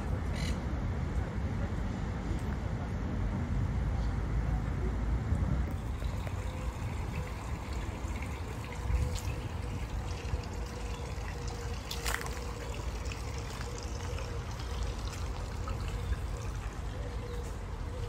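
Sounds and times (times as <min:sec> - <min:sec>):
fountain water trickling: 0:05.7 - 0:18.0.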